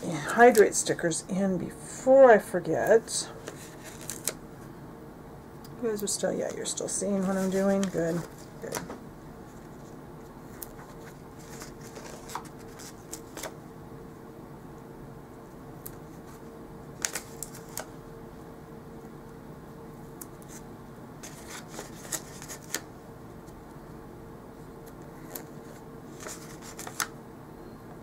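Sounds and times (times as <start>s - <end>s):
faint steady hum: 0.0s - 28.0s
paper stickers rustling: 3.4s - 4.4s, 5.9s - 13.6s, 17.0s - 17.9s, 21.2s - 22.9s, 25.2s - 27.1s.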